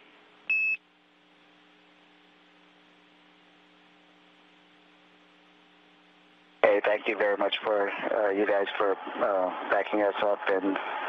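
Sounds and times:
radio channel hum and hiss: 0.0 - 11.0.

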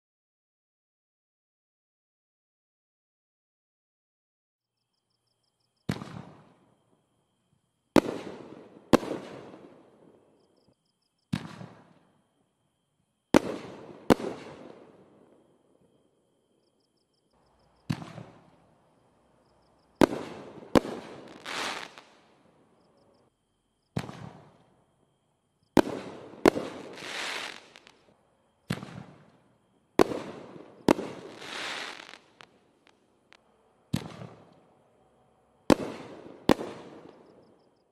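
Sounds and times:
hissing fireworks: 5.8 - 6.8, 7.9 - 10.5, 11.3 - 12.2, 13.3 - 15.9, 17.5 - 22.8, 23.9 - 24.8, 25.7 - 34.7, 35.7 - 37.7
firework shells bursting: 20.0 - 22.2, 30.0 - 33.4.

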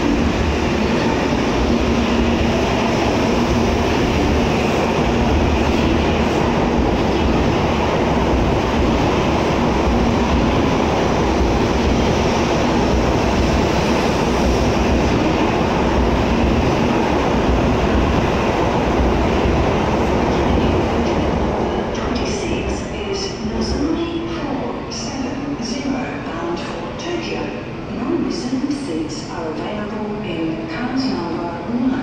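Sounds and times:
train wheels rumbling: 0.0 - 24.3.

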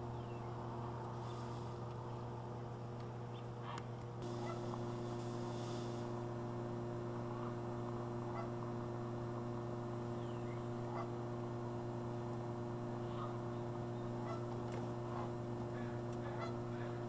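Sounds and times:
steady low hum: 0.0 - 17.0
goose honks: 4.4 - 4.7, 8.3 - 8.6, 13.0 - 13.4, 14.2 - 14.5, 15.1 - 17.0.

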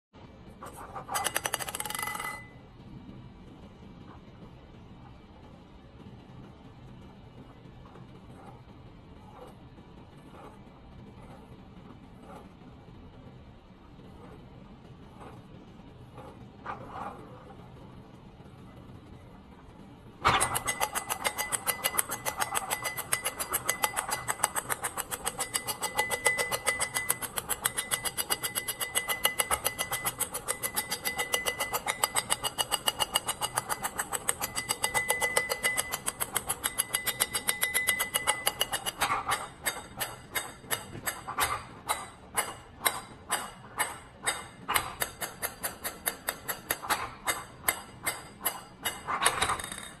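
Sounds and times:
ping pong ball bouncing on plastic: 1.1 - 2.5.

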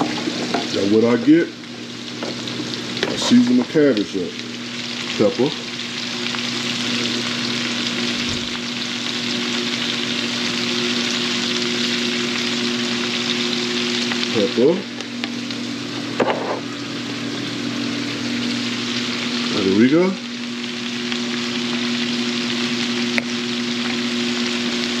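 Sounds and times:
cabbage sizzling in a skillet: 0.0 - 25.0.

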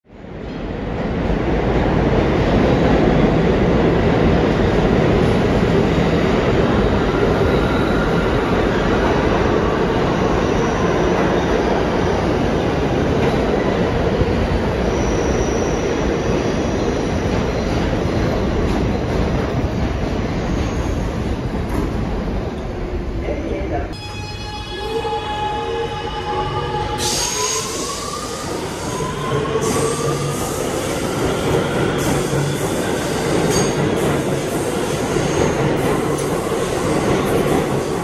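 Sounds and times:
high brake squeals: 24.0 - 30.4
train wheels rumbling on rails: 26.5 - 38.0.

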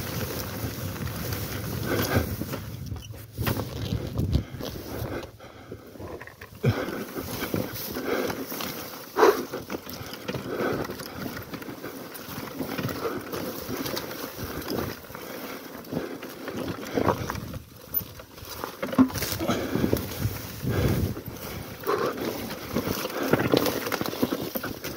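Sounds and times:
dirt bike tyres knocking over rocks: 16.5 - 24.9.

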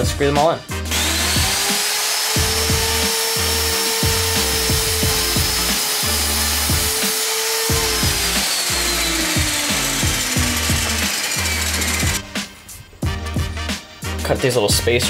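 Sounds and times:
background music with bass beat: 0.0 - 1.7, 2.4 - 7.0, 7.7 - 15.0
miter saw cutting wood: 0.9 - 12.6.

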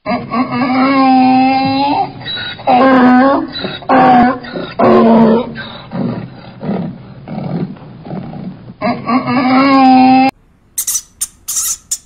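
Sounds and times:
donkey braying: 0.0 - 7.9.

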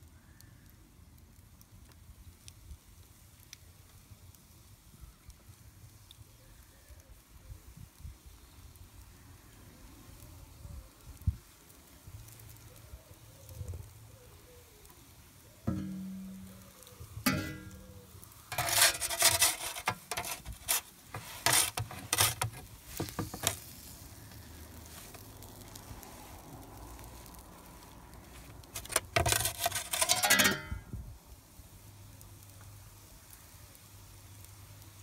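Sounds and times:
steady hiss: 0.0 - 29.2, 30.6 - 35.0
metal peel scraping on stone: 15.7 - 23.9, 28.4 - 30.9.

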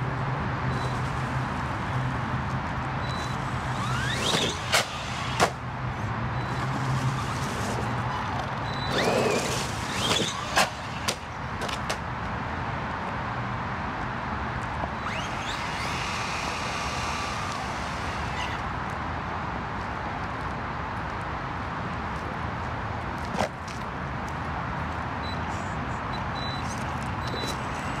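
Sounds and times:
electric motor whining: 3.4 - 5.4, 15.0 - 18.6.

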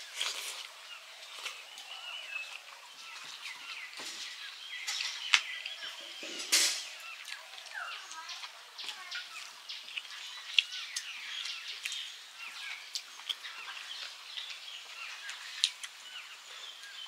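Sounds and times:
small birds chirping: 0.0 - 17.0
hand eating off steel plates: 3.4 - 7.8.

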